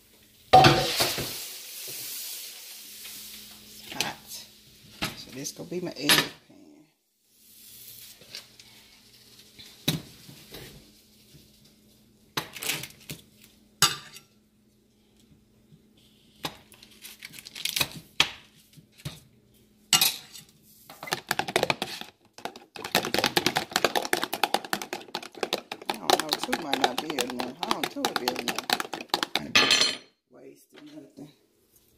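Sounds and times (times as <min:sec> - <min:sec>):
spoon beating eggs in plastic bowl: 0:20.9 - 0:29.6
cookware knocking and clinking: 0:22.4 - 0:30.1.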